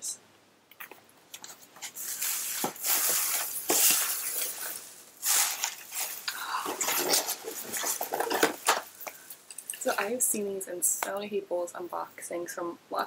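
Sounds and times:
packaging rustling and crinkling: 1.3s - 10.0s.

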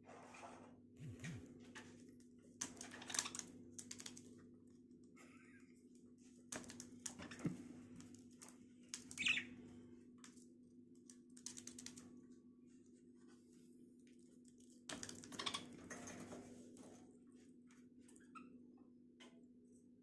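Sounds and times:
beaks and feet scratching in cage: 0.1s - 18.5s
bird chirp: 9.1s - 9.6s.

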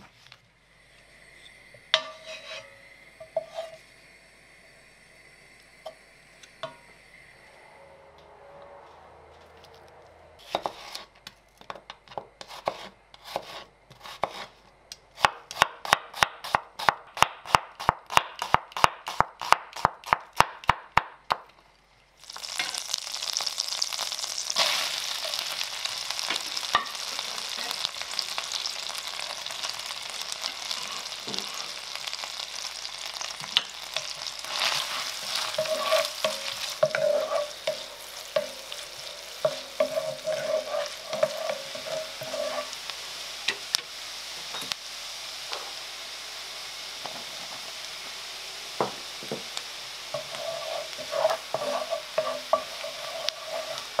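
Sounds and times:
butter and onion sizzling: 0.0s - 7.4s, 10.4s - 54.0s
wooden spatula scraping: 2.0s - 3.8s, 8.7s - 11.3s, 12.1s - 14.6s, 24.4s - 28.3s, 33.9s - 42.9s, 50.1s - 54.0s.

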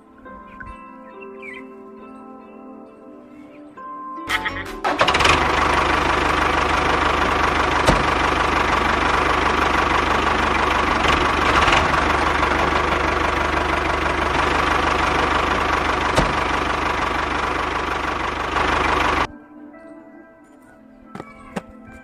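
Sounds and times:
tractor engine idling: 4.8s - 19.3s.

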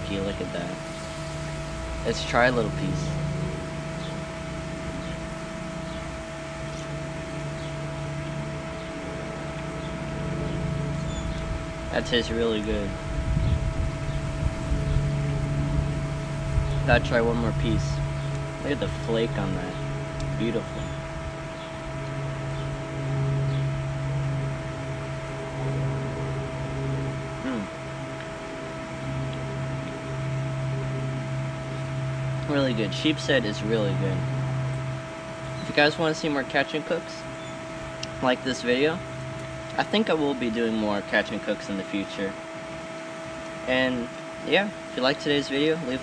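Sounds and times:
steady mechanical hum: 0.0s - 46.0s.

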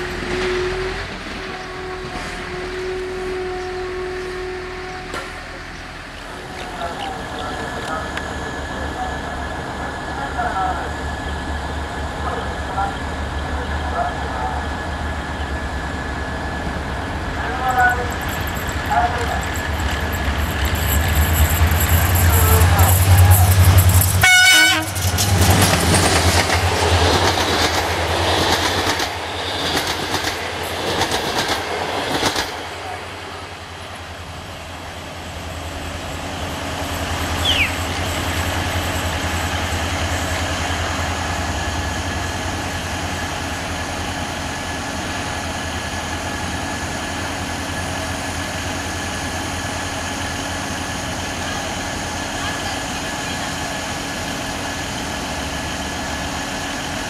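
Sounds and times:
train horn blast: 0.0s - 5.9s, 24.2s - 25.1s
diesel locomotive engine: 0.0s - 57.0s.

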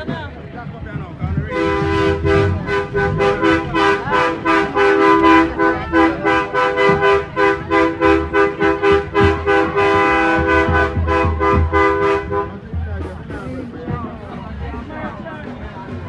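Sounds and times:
truck horns in pulsing chord: 1.5s - 12.7s.

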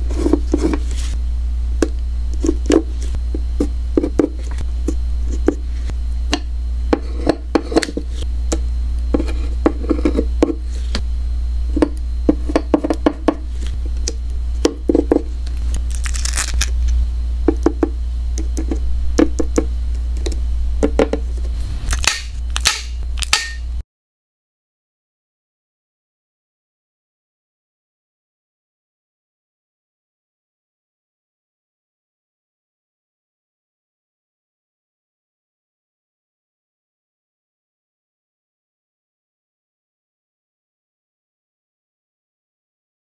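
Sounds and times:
low hum: 0.0s - 23.8s
paper rustle: 15.8s - 16.7s.

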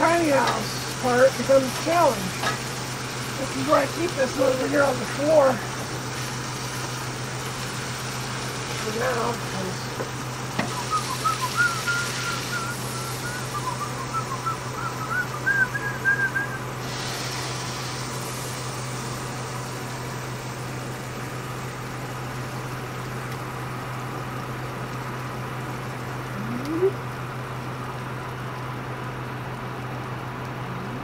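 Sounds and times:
steady low hum: 0.0s - 31.0s
person whistling a tune: 10.7s - 16.6s.

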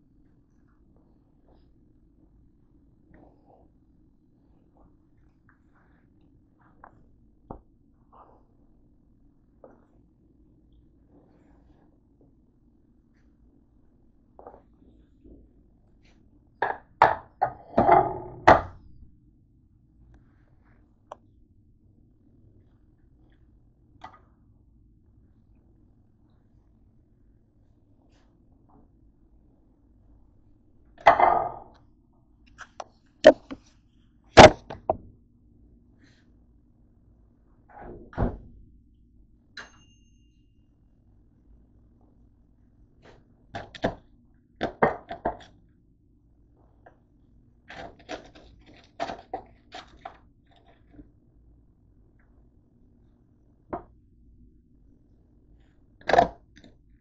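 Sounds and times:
objects knocking on counter: 16.6s - 18.8s, 31.0s - 31.7s.

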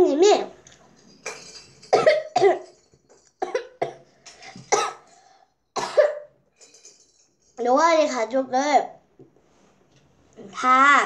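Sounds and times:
child coughing: 1.9s - 2.8s, 3.4s - 5.1s, 5.8s - 6.4s.

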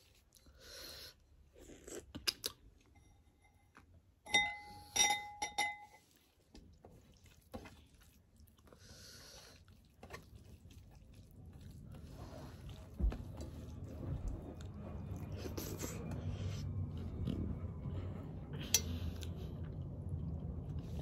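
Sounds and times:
person chewing: 1.5s - 2.9s, 9.4s - 17.5s.

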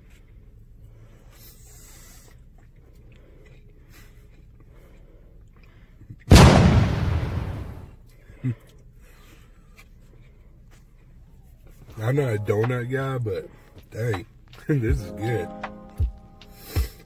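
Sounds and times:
faint chewing: 0.0s - 6.3s, 8.0s - 12.0s
loud blast sound effect: 6.3s - 7.9s.

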